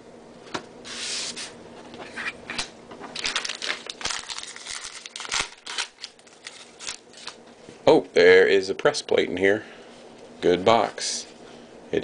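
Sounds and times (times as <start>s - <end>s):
wrapper and cards crinkling: 3.1s - 7.4s
wrapper tearing: 3.2s - 7.4s.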